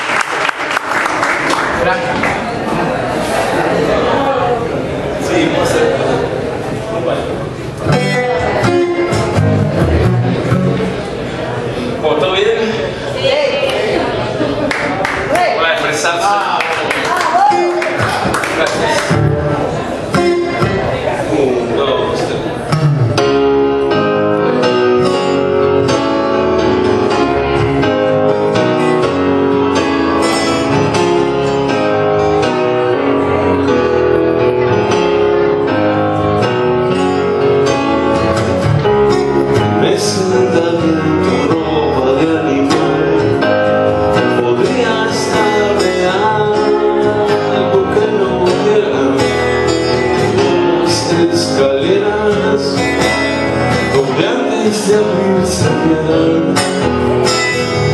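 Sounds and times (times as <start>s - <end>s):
electric keyboard: 1.6s - 13.0s, 17.0s - 57.9s
strummed acoustic guitar: 7.4s - 11.9s, 19.0s - 21.4s, 22.5s - 57.9s
man singing: 39.6s - 57.1s.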